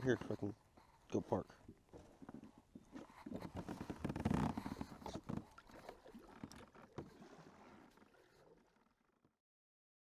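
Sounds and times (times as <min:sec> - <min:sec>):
paddle strokes and water splashes: 0:01.6 - 0:09.4.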